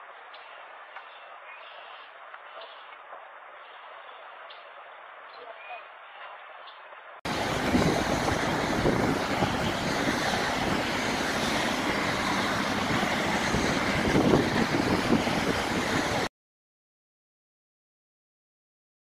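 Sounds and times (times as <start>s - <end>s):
loud outdoor rushing noise: 7.3s - 16.3s.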